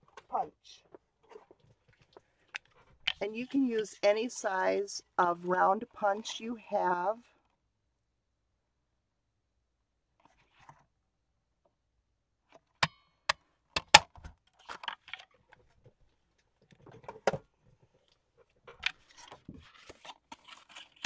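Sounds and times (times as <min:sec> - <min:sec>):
paper rustling: 0:18.7 - 0:21.0.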